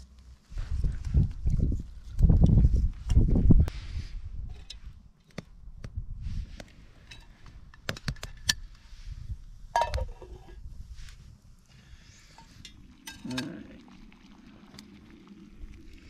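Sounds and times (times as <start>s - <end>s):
lid clanking onto pot: 9.8s - 10.6s
metal pot and lid clinking: 9.8s - 10.6s, 12.4s - 13.6s.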